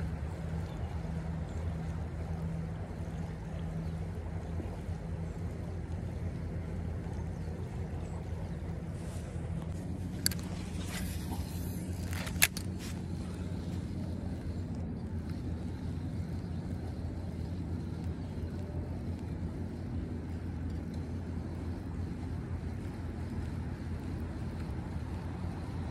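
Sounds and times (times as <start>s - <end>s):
wind rumble on microphone: 0.0s - 25.9s
sharp clicks: 9.6s - 19.3s.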